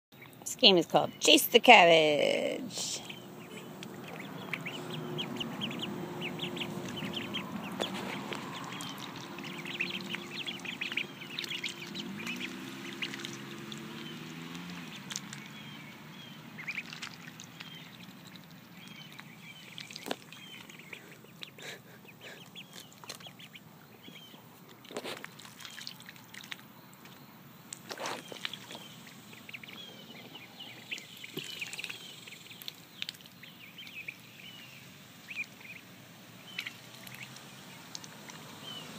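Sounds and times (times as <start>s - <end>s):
ducklings peeping: 0.2s - 38.9s
low hum: 2.9s - 21.4s
water splashes: 2.9s - 21.5s, 22.4s - 27.2s, 27.8s - 34.6s, 35.2s - 38.9s.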